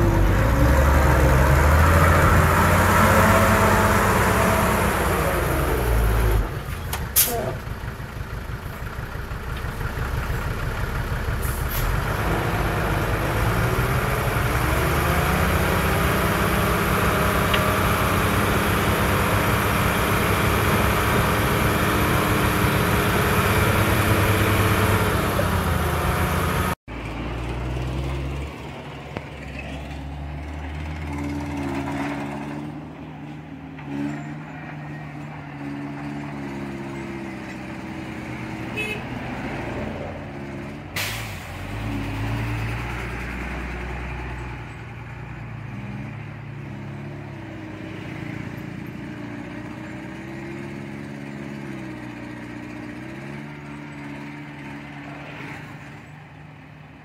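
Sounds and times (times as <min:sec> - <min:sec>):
heavy diesel engine working: 0:00.0 - 0:28.8.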